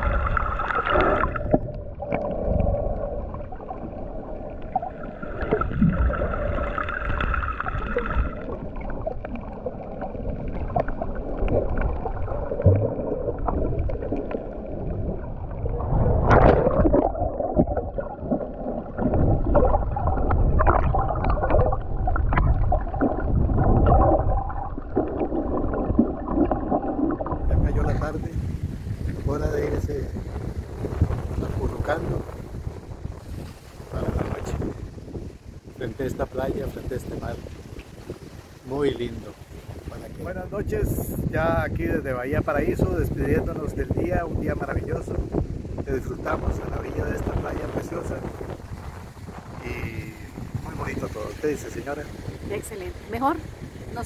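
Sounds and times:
low rumble: 0:00.0 - 0:33.2
underwater gurgling and sloshing: 0:00.0 - 0:54.0.

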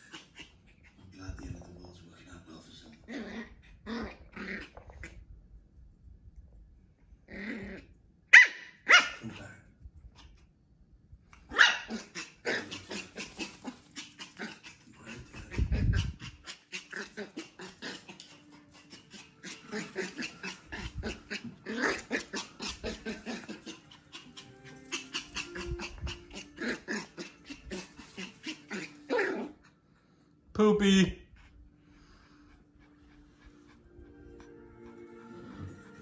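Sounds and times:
puppy growling: 0:00.0 - 0:01.6, 0:02.8 - 0:05.4, 0:07.2 - 0:08.0, 0:11.4 - 0:29.8
puppy barking: 0:08.3 - 0:09.3, 0:11.5 - 0:14.6.

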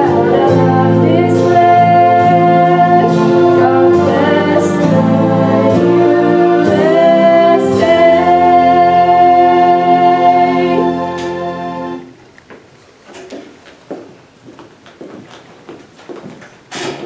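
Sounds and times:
girl singing slow song: 0:00.0 - 0:11.5
sustained keyboard accompaniment: 0:00.0 - 0:12.2.

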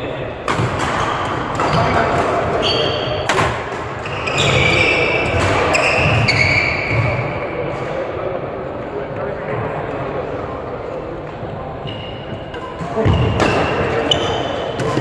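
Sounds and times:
players chatting: 0:00.0 - 0:15.0
shoes squeaking on court floor: 0:01.0 - 0:07.5, 0:11.7 - 0:15.0
racket striking shuttlecock: 0:03.2 - 0:03.8.

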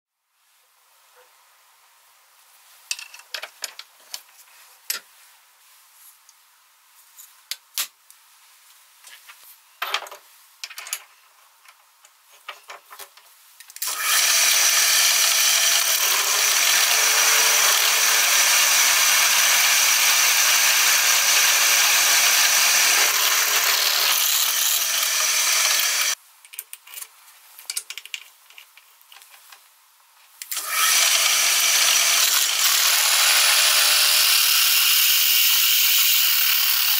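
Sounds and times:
drill press cutting metal: 0:13.8 - 0:26.2, 0:30.5 - 0:35.3.

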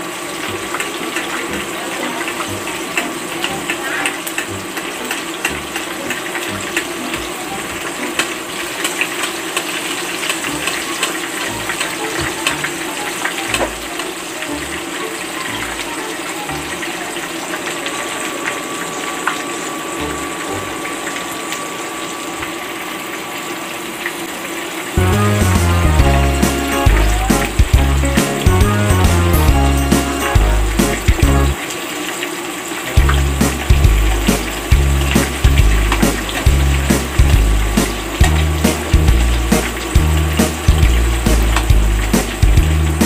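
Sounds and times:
chicken sizzling in hot oil: 0:00.0 - 0:25.4, 0:29.5 - 0:43.0
background music: 0:02.4 - 0:08.3, 0:10.4 - 0:17.0, 0:20.0 - 0:20.8, 0:25.0 - 0:31.6, 0:32.9 - 0:43.0.

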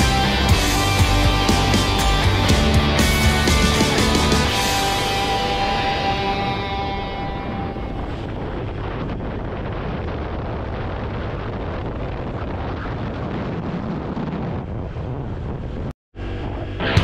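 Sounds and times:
wind on microphone: 0:04.4 - 0:16.9.

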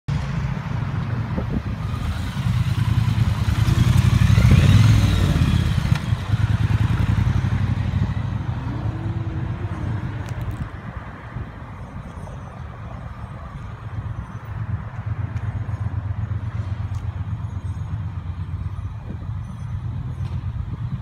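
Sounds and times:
motorcycle engine pulling away: 0:01.7 - 0:10.2.

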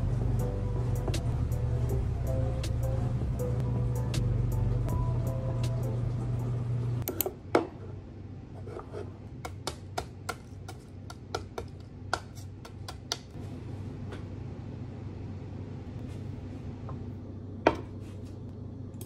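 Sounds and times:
background music: 0:00.0 - 0:07.0.

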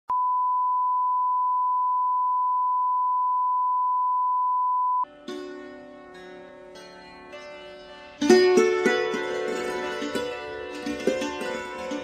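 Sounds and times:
plucked string music: 0:05.1 - 0:12.0.

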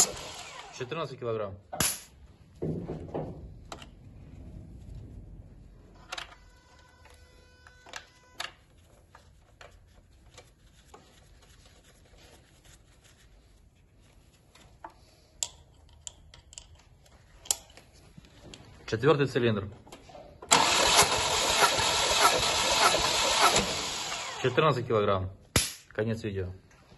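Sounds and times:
tools clicking and knocking on metal: 0:15.4 - 0:17.9.

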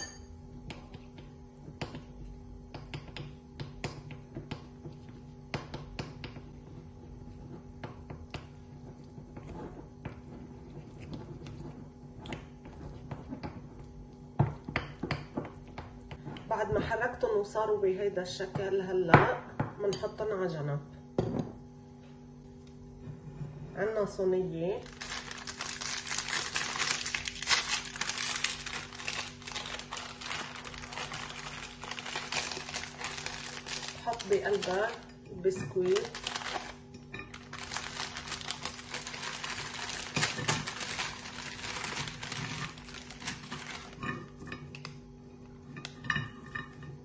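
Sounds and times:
faint steady hum: 0:00.0 - 0:47.0
plastic wrapper crinkling: 0:24.8 - 0:35.1, 0:35.8 - 0:44.0.

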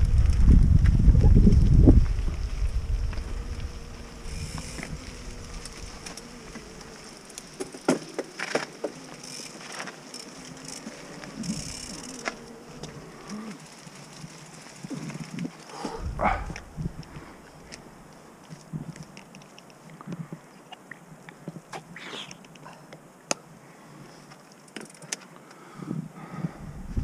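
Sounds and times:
wind rumble on microphone: 0:00.0 - 0:06.9, 0:14.8 - 0:17.7, 0:25.8 - 0:27.0
faint buzzing hum: 0:00.0 - 0:19.2
bike clicks and knocks: 0:04.4 - 0:17.8, 0:18.4 - 0:20.2, 0:24.3 - 0:25.3.

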